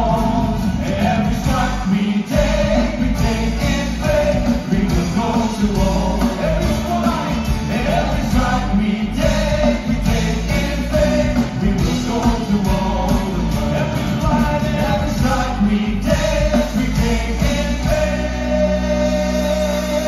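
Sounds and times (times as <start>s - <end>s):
band with drums: 0.0s - 20.0s
voices singing worship song: 0.0s - 20.0s.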